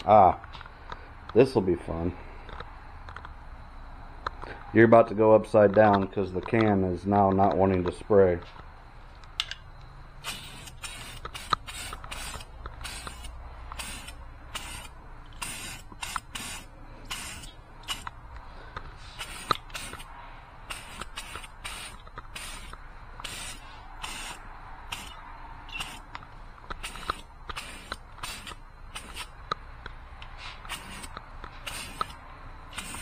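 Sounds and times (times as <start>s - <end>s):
aerosol can spraying bursts: 10.2s - 18.1s, 19.0s - 26.0s, 26.8s - 29.3s, 30.4s - 33.0s.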